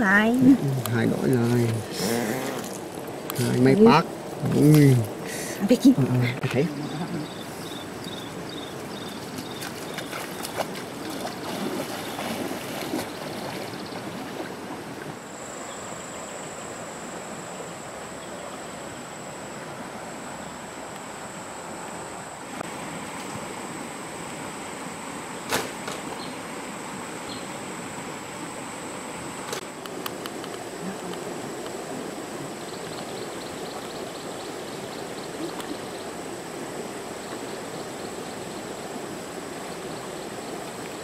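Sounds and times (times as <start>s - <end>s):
stream trickling over rocks: 0.0s - 15.2s, 27.6s - 41.0s.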